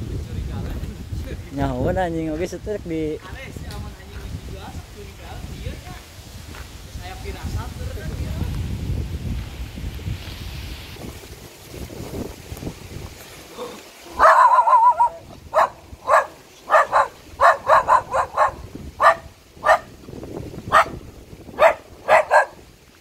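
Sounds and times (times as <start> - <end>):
dog barking high-pitched: 14.1 - 19.9, 20.7 - 22.6
dog yelping: 14.1 - 19.9, 20.7 - 21.0, 21.6 - 22.6.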